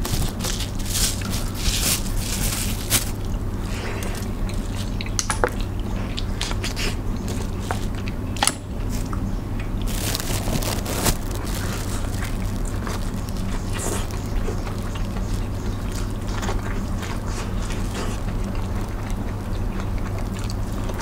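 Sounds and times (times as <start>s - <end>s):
sharp clicks and crunches: 0.0s - 3.4s, 6.2s - 21.0s
person chewing: 0.0s - 8.2s, 8.9s - 21.0s
low hum: 7.0s - 21.0s.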